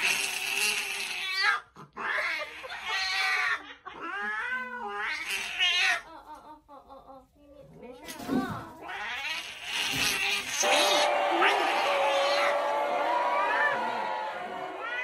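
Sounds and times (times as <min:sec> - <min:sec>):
cat yowling: 0:14.7 - 0:15.0.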